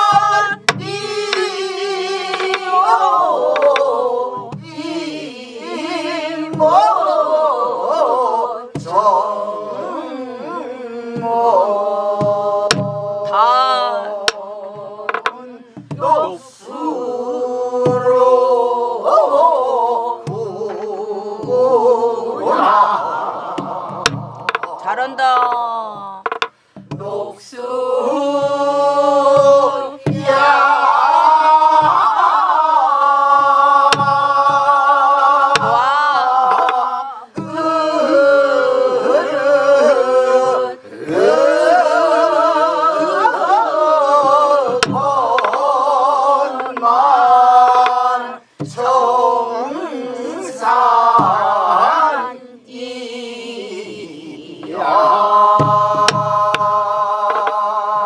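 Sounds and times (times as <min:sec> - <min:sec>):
barrel drum strokes: 0:00.0 - 0:05.0, 0:12.2 - 0:13.4, 0:14.3 - 0:16.4, 0:23.5 - 0:27.2, 0:29.3 - 0:32.6, 0:33.4 - 0:34.8, 0:35.4 - 0:37.7, 0:44.3 - 0:48.9, 0:51.1 - 0:51.6, 0:54.6 - 0:57.7
group singing folk song: 0:00.0 - 0:58.0.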